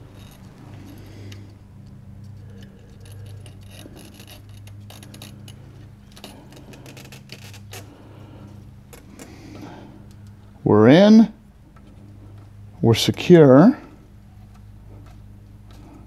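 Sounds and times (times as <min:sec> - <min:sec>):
faint clicks and scraping of pins: 0:00.0 - 0:10.5, 0:11.6 - 0:16.0
steady low hum: 0:00.0 - 0:16.0.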